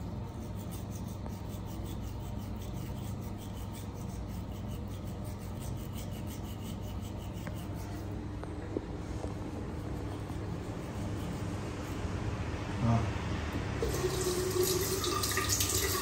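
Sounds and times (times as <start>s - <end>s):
toothbrush scrubbing teeth: 0.0s - 8.1s.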